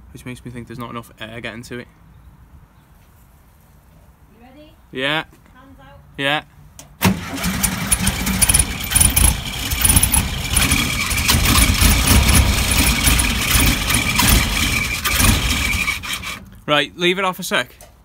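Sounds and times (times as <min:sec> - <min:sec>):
engine starting and running unevenly: 0:07.0 - 0:16.6.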